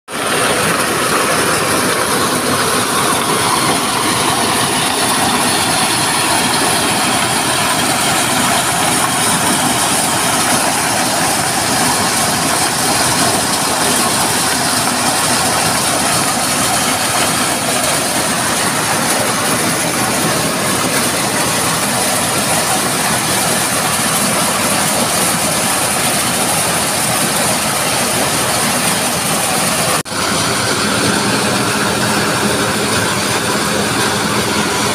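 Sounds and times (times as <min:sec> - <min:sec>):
corn sheller with blower running: 0:00.1 - 0:34.9.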